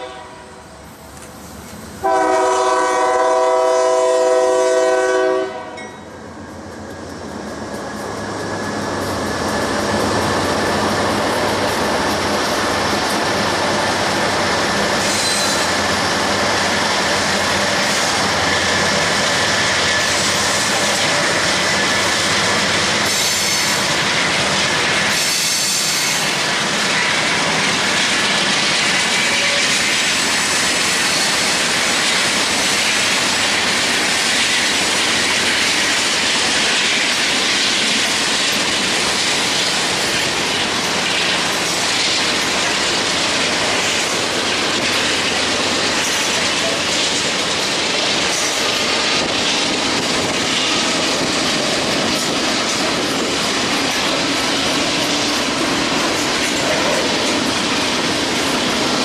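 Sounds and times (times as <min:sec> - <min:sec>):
freight train wheels on rails: 0:00.0 - 0:59.0
clicking over rail joints: 0:01.1 - 0:01.9, 0:26.2 - 0:59.0.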